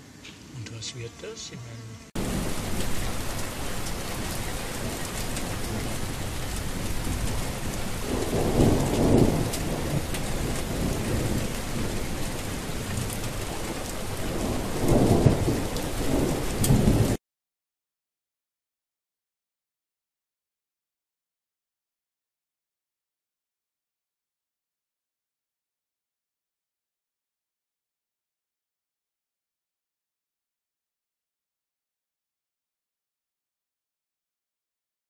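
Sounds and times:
heavy rain: 2.1s - 17.2s
thunder rolling: 2.2s - 17.2s.

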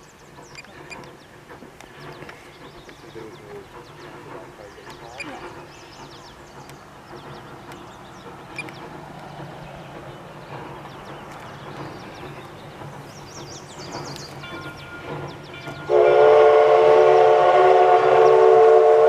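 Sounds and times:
birds chirping: 0.0s - 16.1s
distant steam locomotive rumble: 0.0s - 19.0s.

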